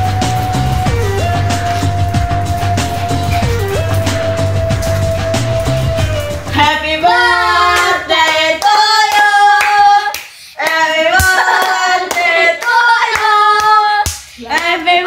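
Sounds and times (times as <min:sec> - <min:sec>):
hands clapping: 0:00.2 - 0:06.5, 0:07.7 - 0:14.8
young voices singing together: 0:06.1 - 0:15.0.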